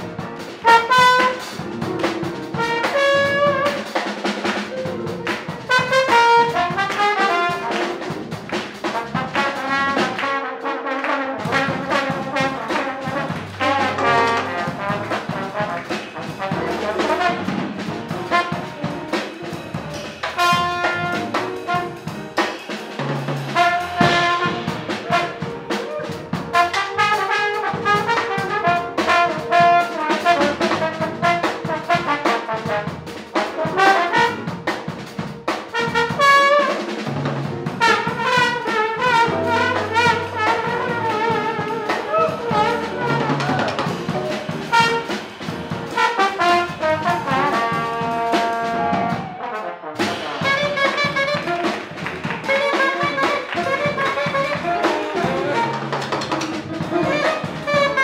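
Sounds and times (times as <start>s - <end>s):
alto saxophone lead: 0.0s - 4.0s, 4.7s - 22.4s, 23.5s - 34.8s, 35.7s - 37.1s, 37.8s - 58.0s
trombone solo: 0.0s - 22.4s, 23.0s - 58.0s
drum kit: 0.0s - 58.0s
electric bass: 1.5s - 3.7s, 7.7s - 10.1s, 11.6s - 22.4s, 37.1s - 38.2s, 39.2s - 46.0s.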